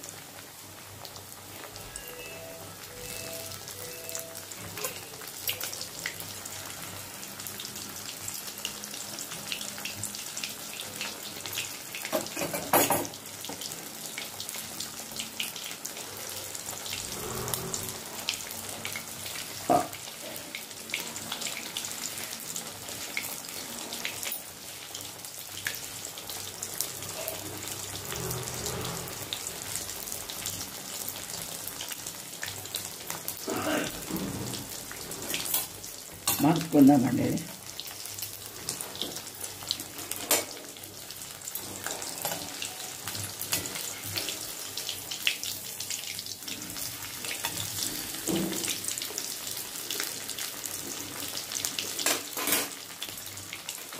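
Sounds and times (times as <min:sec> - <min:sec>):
fish deep-frying in oil: 0:00.0 - 0:53.9.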